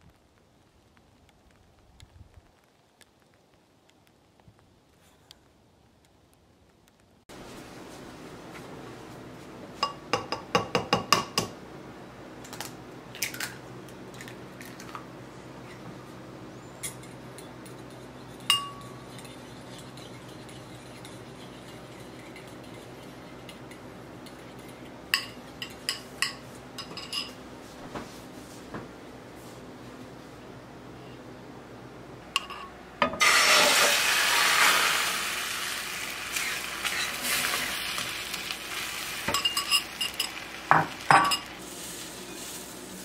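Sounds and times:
metal spoon clinking ceramic bowl: 18.4 - 22.6, 39.3 - 40.4.

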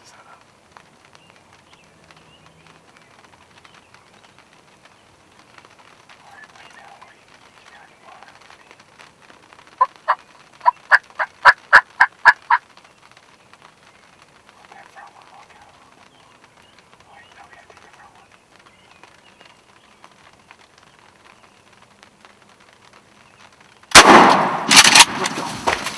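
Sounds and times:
turkey yelps: 6.2 - 8.5, 9.8 - 12.6.

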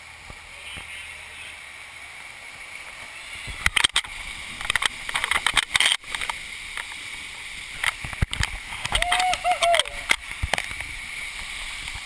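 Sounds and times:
rushing water: 0.0 - 12.0
steady hiss: 0.0 - 12.0.

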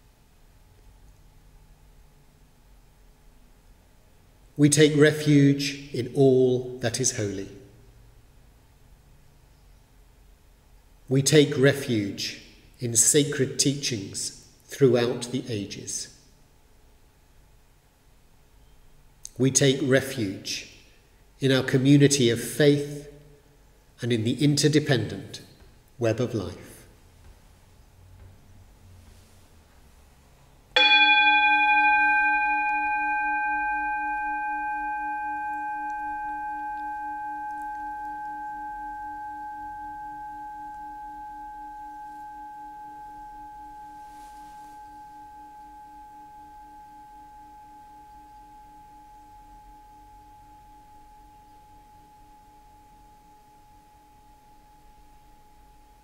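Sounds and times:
metal singing bowl ringing: 30.7 - 56.0.

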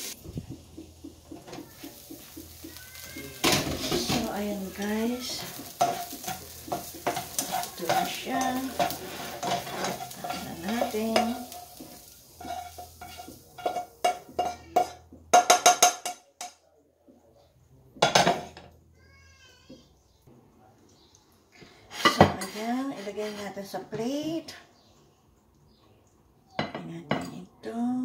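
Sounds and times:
spatula scraping frying pan: 0.0 - 15.1, 21.9 - 23.9
faint sizzle: 0.0 - 28.0
pan clunking onto stove: 1.4 - 16.2.

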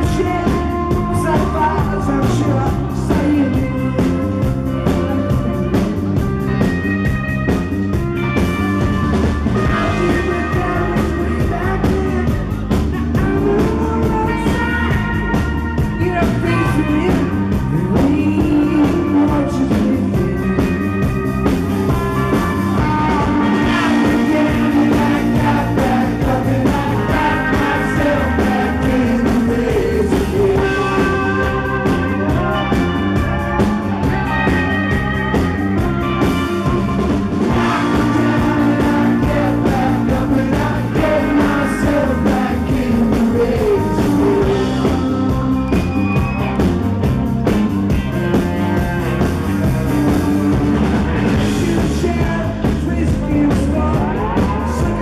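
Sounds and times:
man singing: 0.0 - 6.6, 9.6 - 36.9, 37.5 - 46.2, 49.6 - 55.0
live rock band playing: 0.0 - 55.0.

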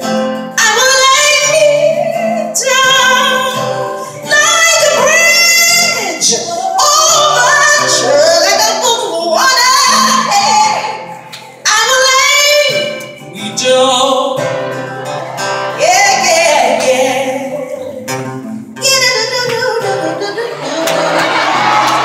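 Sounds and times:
woman singing: 0.6 - 14.5, 15.7 - 22.0
band playing: 19.9 - 22.0
audience cheering: 20.6 - 22.0.

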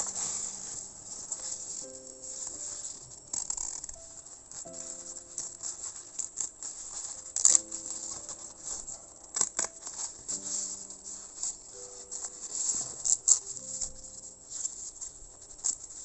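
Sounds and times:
paper rustling: 0.0 - 16.0
soft background music: 0.0 - 16.0.

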